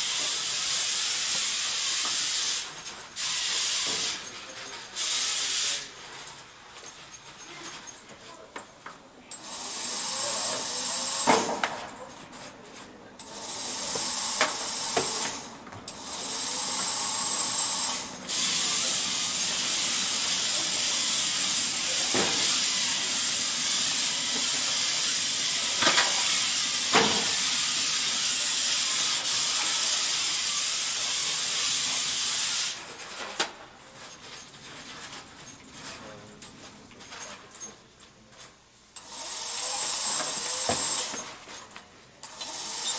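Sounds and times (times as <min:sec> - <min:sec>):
robot electric motors whirring: 0:00.0 - 0:06.4, 0:09.3 - 0:11.7, 0:13.2 - 0:32.8, 0:39.0 - 0:41.6, 0:42.2 - 0:42.9.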